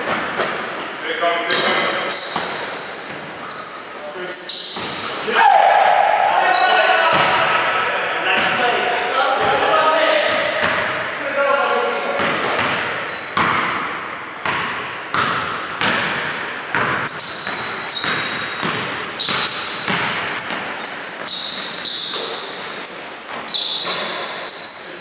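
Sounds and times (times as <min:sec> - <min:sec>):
sneakers squeaking on court: 0:00.0 - 0:05.3, 0:12.1 - 0:25.0
basketball bouncing on wooden floor: 0:04.7 - 0:05.1, 0:10.3 - 0:11.0, 0:12.2 - 0:24.2.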